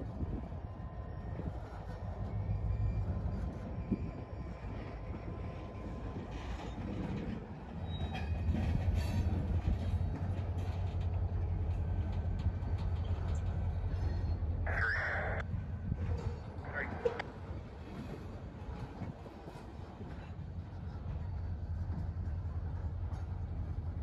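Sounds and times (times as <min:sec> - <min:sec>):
freight train rumbling past: 0:00.0 - 0:24.0
train wheel clicks: 0:06.3 - 0:14.5.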